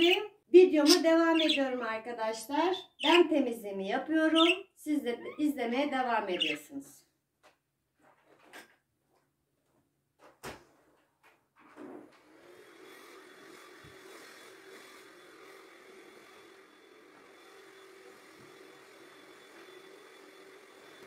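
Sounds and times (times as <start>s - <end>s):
stick vacuum running: 12.2s - 21.0s.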